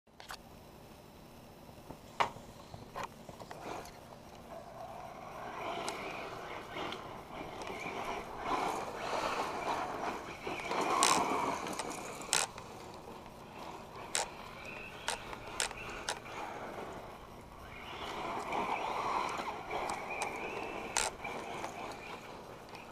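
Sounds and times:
electric toy car motor whine: 2.6s - 22.9s
tyres on gravel: 5.2s - 22.9s
sharp clicks: 5.4s - 22.9s.

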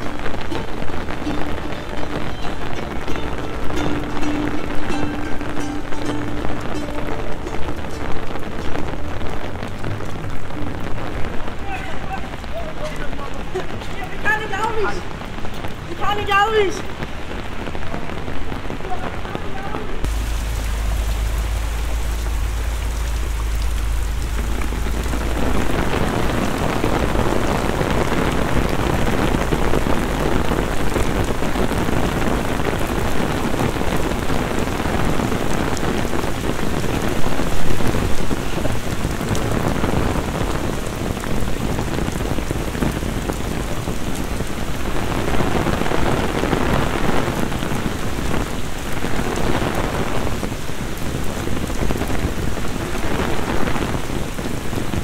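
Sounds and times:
heavy rain on umbrella: 0.0s - 55.0s
rain splashing on paving: 0.0s - 55.0s
low rumble: 20.1s - 30.6s.

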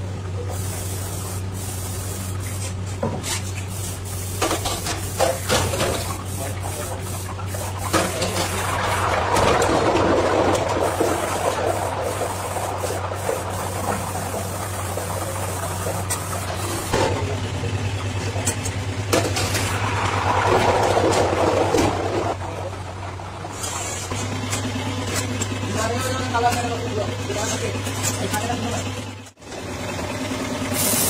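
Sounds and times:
low machine hum: 0.0s - 30.9s.

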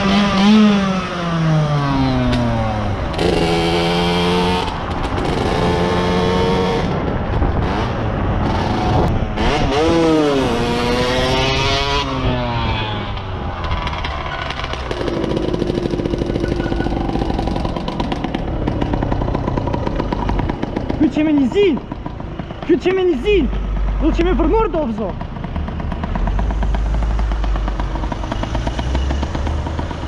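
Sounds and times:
motorcycle engine revving: 0.0s - 30.0s
rushing wind noise: 1.8s - 23.6s.

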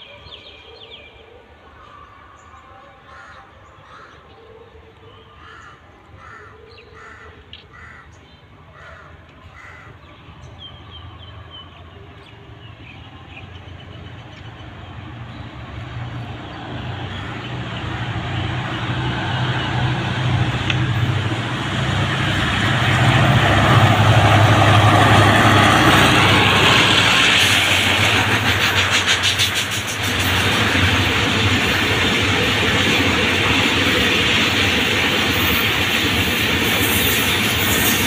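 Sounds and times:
crows cawing: 3.1s - 4.2s, 5.4s - 8.1s, 8.7s - 10.0s
diesel locomotive engine hum: 9.2s - 38.0s
train rolling: 12.1s - 38.0s.

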